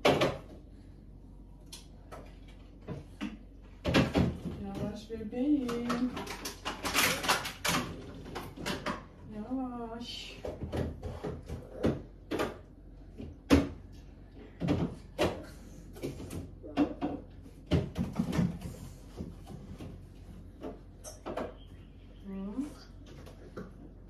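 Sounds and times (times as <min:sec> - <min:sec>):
things knocking in a cupboard: 0:02.1 - 0:09.1, 0:10.3 - 0:13.9, 0:14.5 - 0:21.6.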